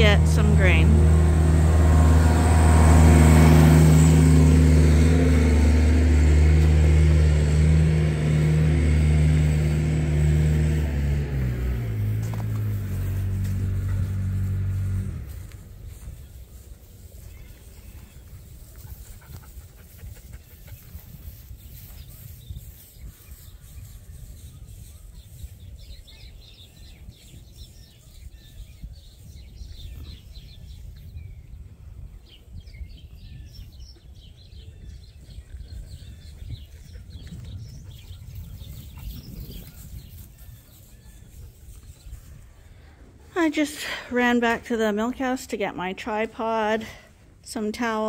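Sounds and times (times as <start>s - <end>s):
small birds chirping: 15.4s - 43.2s.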